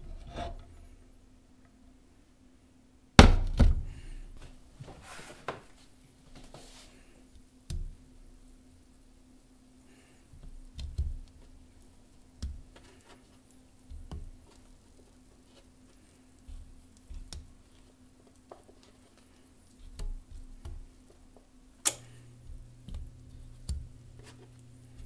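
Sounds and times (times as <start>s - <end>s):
faint hum: 6.8s - 25.0s.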